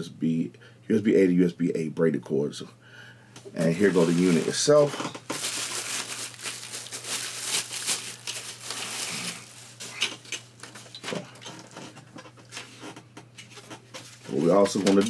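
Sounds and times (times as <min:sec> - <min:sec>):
plastic bag crinkling: 0:03.6 - 0:11.0.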